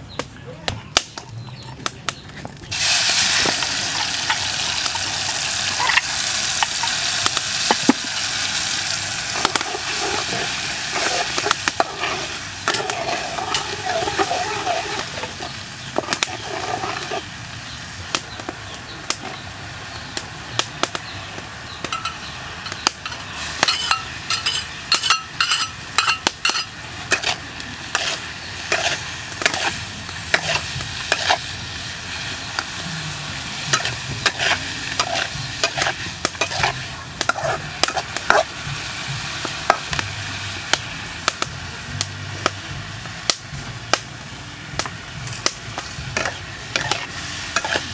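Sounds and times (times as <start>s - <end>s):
oil sizzling: 2.7s - 47.9s
metal spatula scraping a wok: 8.1s - 17.4s, 21.9s - 38.5s, 45.4s - 47.9s.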